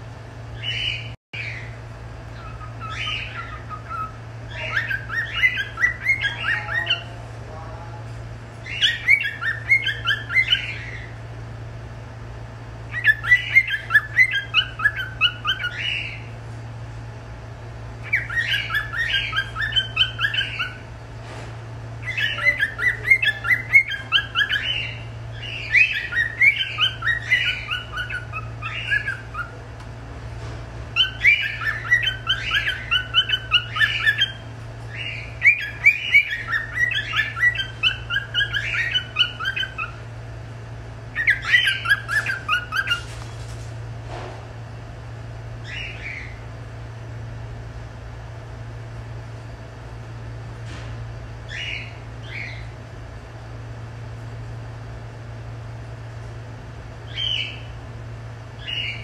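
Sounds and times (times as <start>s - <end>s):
cockatiel chirpy warbling: 2.3s - 7.1s, 8.6s - 11.1s, 12.9s - 16.2s, 18.0s - 20.8s, 22.0s - 29.6s, 31.0s - 40.0s, 41.1s - 43.0s.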